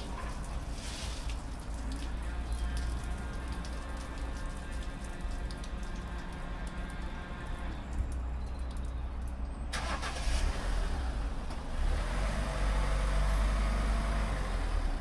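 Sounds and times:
car engine starting and running: 0:09.7 - 0:14.9.

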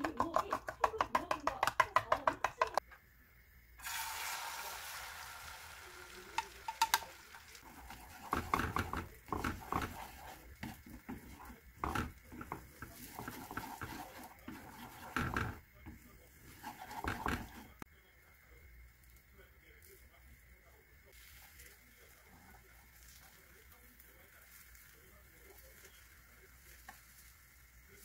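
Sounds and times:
chopsticks whisking eggs: 0:00.0 - 0:02.8, 0:06.4 - 0:17.8
egg sizzling in frying pan: 0:03.4 - 0:15.6, 0:21.1 - 0:28.0
chopsticks scraping pan: 0:07.6 - 0:17.8.

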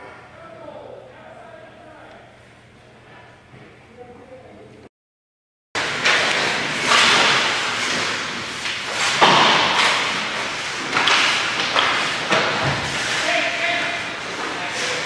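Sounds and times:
sticks and puck hitting boards: 0:05.8 - 0:15.0
skate blades scraping ice: 0:06.6 - 0:15.0.

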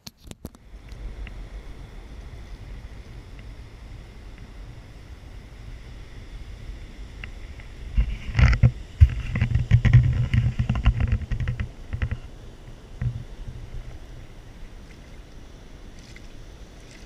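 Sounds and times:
wind buffeting microphone: 0:00.6 - 0:17.0
camera handling knocks and rubbing: 0:08.0 - 0:12.3.

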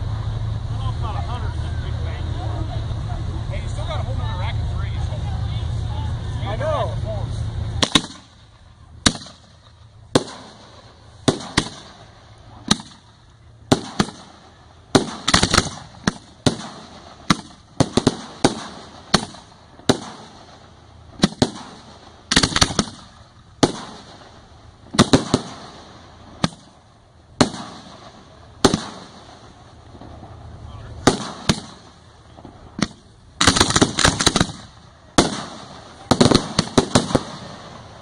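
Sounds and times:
firework shells bursting: 0:07.8 - 0:38.0.

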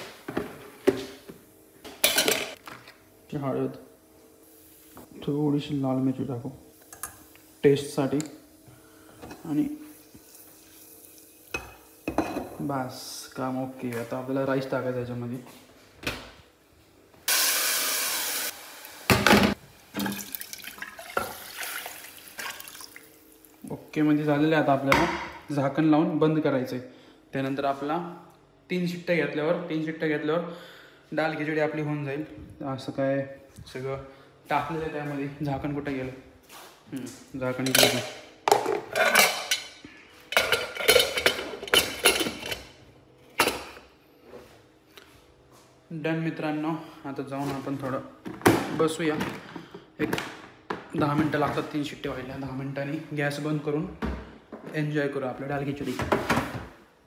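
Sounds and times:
rice sizzling in hot oil: 0:17.3 - 0:19.3
metal lid clanking and scraping: 0:37.7 - 0:39.6.

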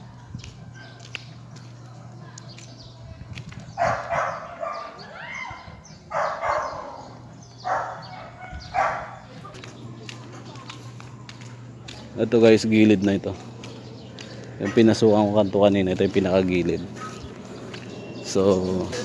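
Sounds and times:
dog barking: 0:03.8 - 0:05.0, 0:06.1 - 0:09.3, 0:17.0 - 0:17.3.

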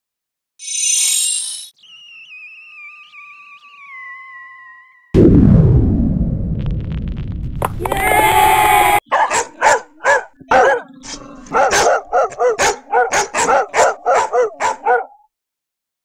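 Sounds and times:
dog barking: 0:09.0 - 0:15.3.

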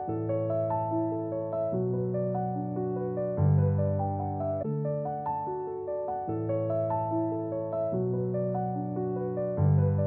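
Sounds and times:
gentle piano melody: 0:00.0 - 0:10.0.

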